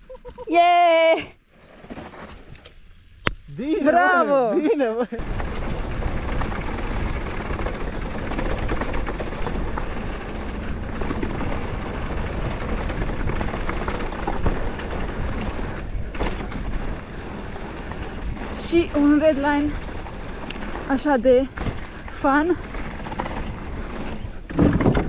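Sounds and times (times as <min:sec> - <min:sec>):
tyres rolling over dirt and rocks: 0:04.7 - 0:25.0
bike rattling and knocking: 0:05.2 - 0:25.0
wind rumbling on microphone: 0:05.2 - 0:25.0.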